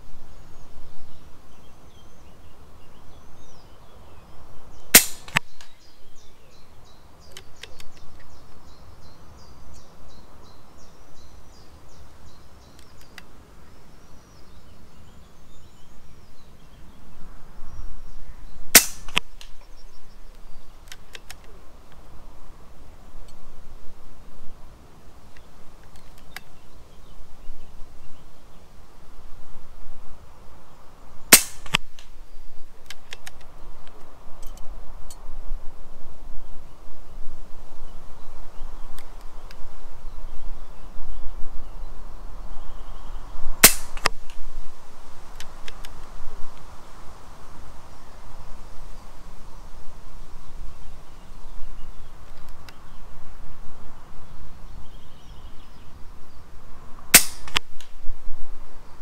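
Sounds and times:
wind noise: 0.0s - 59.0s
air rifle shot crack: 4.9s - 5.7s, 18.7s - 19.4s, 31.3s - 32.0s, 43.6s - 44.1s, 57.1s - 57.7s
faint clicks: 7.2s - 8.6s, 12.7s - 13.3s, 32.8s - 35.2s, 45.3s - 46.7s.

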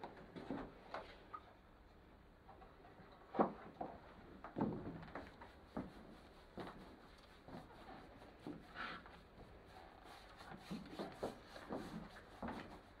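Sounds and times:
damp sponge dabbing and rubbing: 5.1s - 13.0s.

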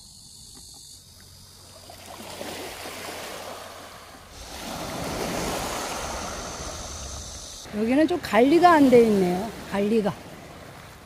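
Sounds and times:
waves washing on pebble beach: 2.2s - 11.0s.

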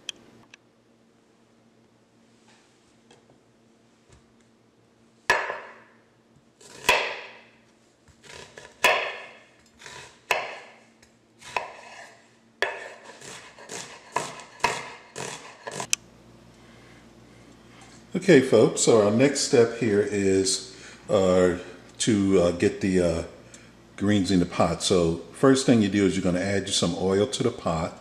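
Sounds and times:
knife chopping on cutting board: 5.3s - 5.8s, 6.6s - 7.4s, 8.2s - 10.8s, 11.4s - 15.9s.

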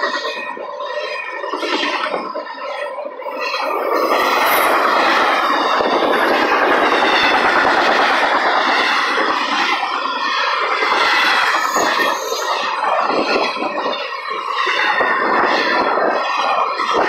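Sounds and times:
freight train wheels on rails: 0.0s - 17.0s.

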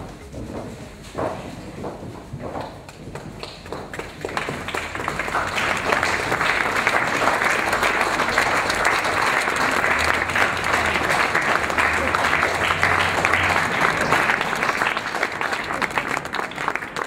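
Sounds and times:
audience applauding: 2.8s - 17.0s.

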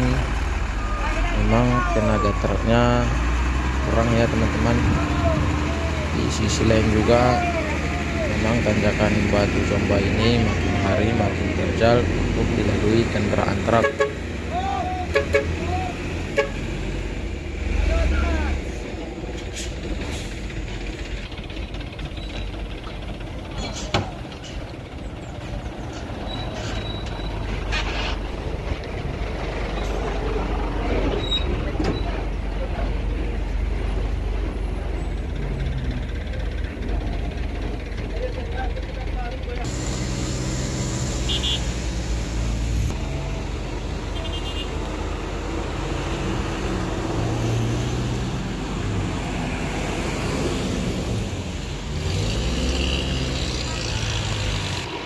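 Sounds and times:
diesel truck engine rumbling: 0.0s - 55.0s.

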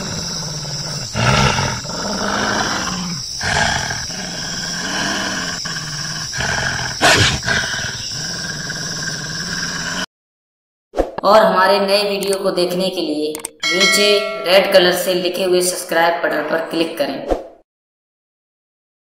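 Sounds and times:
wolf growling and snarling: 0.0s - 10.1s.

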